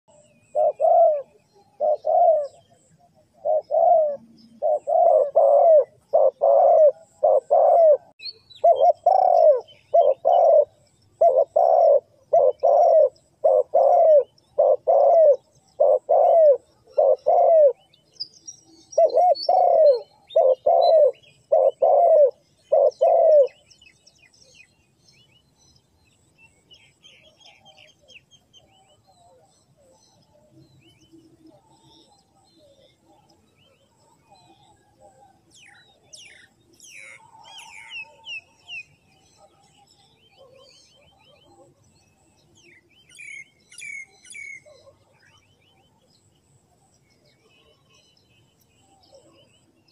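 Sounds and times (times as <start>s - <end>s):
dove cooing: 0.1s - 18.0s, 19.0s - 23.7s, 31.3s - 38.7s, 39.4s - 41.8s, 43.1s - 45.4s
small birds chirping faintly: 0.1s - 49.9s.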